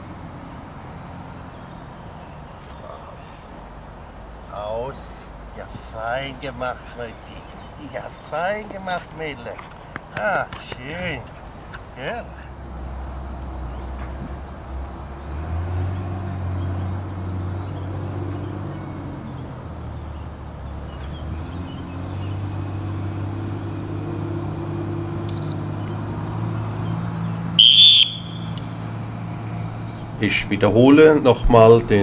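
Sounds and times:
shrill whistle blast: 25.3s - 25.9s, 27.6s - 28.6s.

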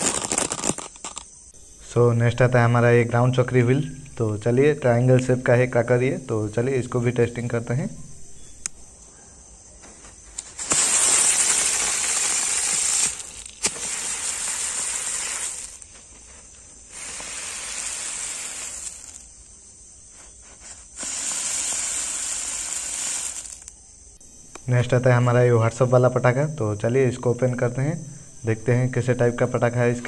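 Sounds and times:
ground spinner fireworks hissing: 0.0s - 1.5s, 10.0s - 24.2s.

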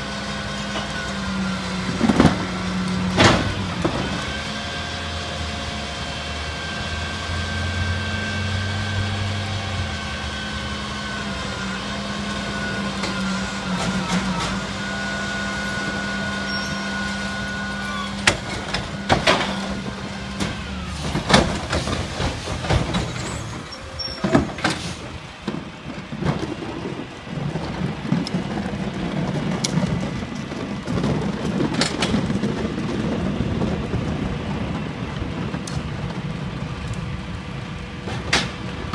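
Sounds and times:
truck engine drone: 0.0s - 38.9s
hydraulic whine: 0.2s - 25.4s
carts banging and clattering: 1.9s - 4.4s, 11.2s - 38.9s.

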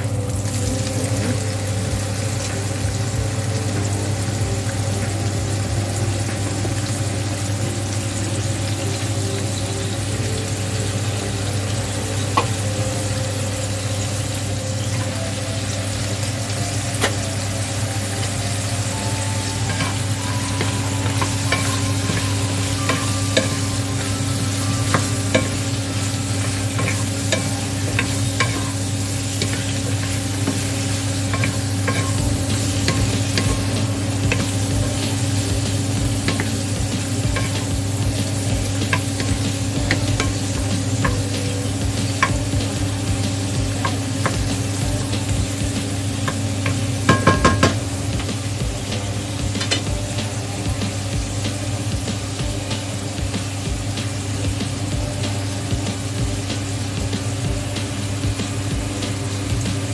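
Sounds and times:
food sizzling in oil: 0.0s - 59.9s
spatula tapping and scraping pan: 19.6s - 45.4s, 46.2s - 48.3s.

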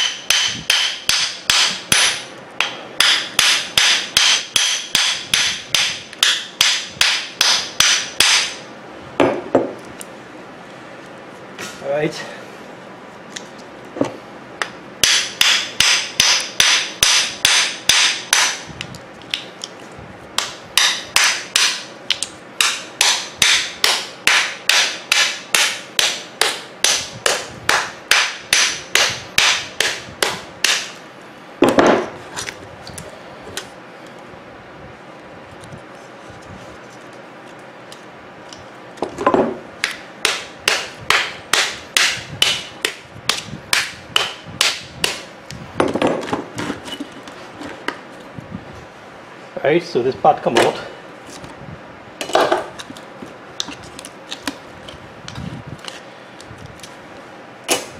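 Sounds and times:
hammer striking metal: 0.0s - 8.6s, 15.0s - 18.6s, 22.6s - 31.0s, 39.8s - 45.2s.

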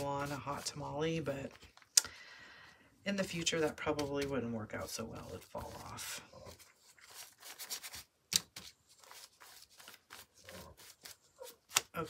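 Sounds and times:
paintbrush scratching on paper: 0.0s - 1.0s, 9.0s - 11.7s.

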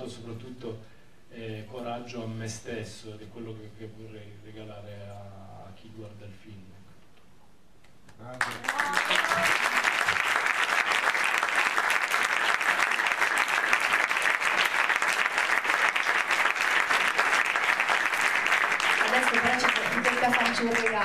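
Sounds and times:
audience applause: 8.4s - 21.0s.

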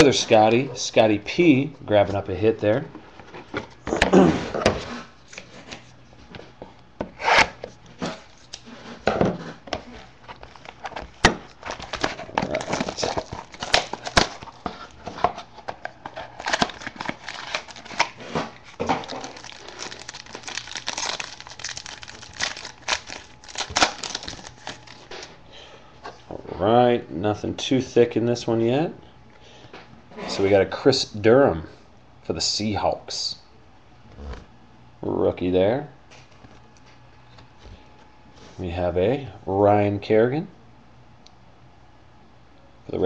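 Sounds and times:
wrapper tearing and crinkling: 10.4s - 14.8s, 16.1s - 25.2s.

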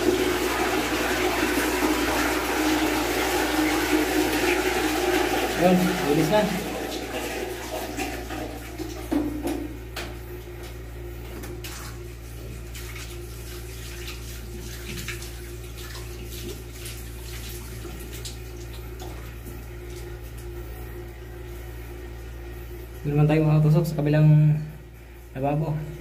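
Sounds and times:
tap water running into washbasin: 0.0s - 20.5s.

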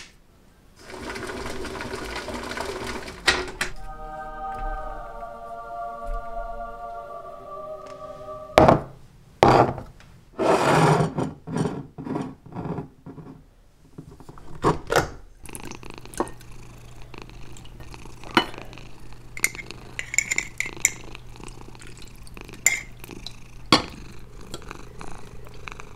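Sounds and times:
steady low hum: 3.8s - 9.4s
glass jars clinking: 19.4s - 21.0s, 22.6s - 23.0s.

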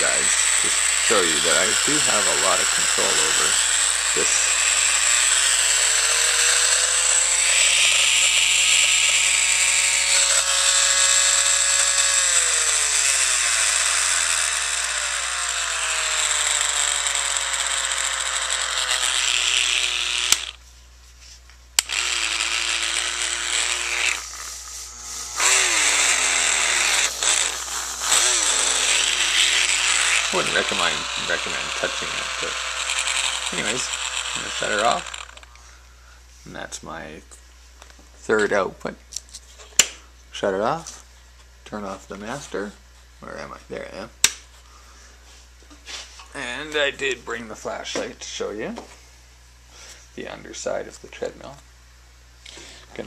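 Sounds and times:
electric motor whining: 0.0s - 20.6s, 21.8s - 35.5s.

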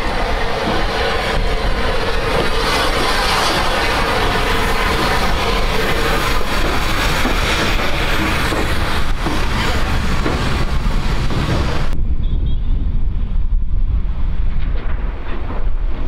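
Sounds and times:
steam locomotive hiss and rumble: 0.0s - 12.0s
wind buffeting microphone: 0.0s - 16.0s.

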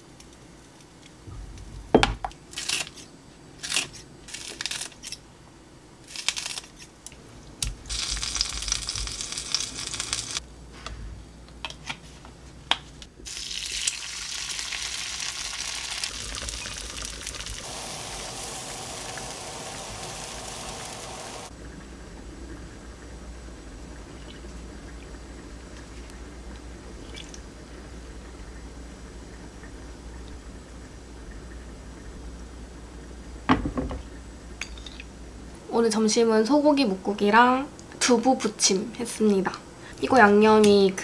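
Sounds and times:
tofu sizzling in a frying pan: 7.9s - 10.4s, 13.2s - 21.5s.

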